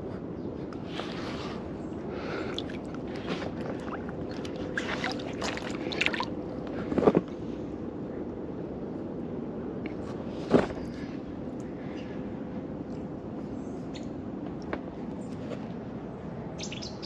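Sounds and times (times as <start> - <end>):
water sloshing and splashing: 2.1 - 7.2
water dripping: 2.5 - 3.0, 3.6 - 6.3.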